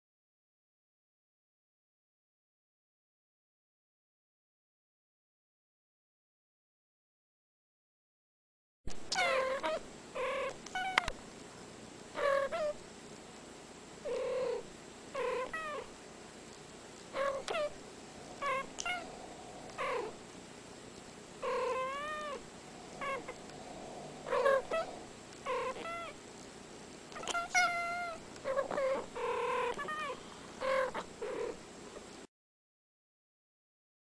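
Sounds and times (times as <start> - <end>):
cats meowing: 9.1 - 11.2, 12.2 - 12.8, 15.2 - 15.9, 17.1 - 20.2, 21.4 - 26.2, 27.1 - 31.6.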